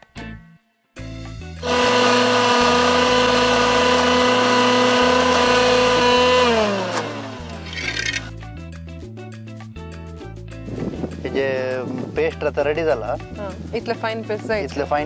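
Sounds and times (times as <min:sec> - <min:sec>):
mixer grinder motor whine: 0:01.6 - 0:08.3.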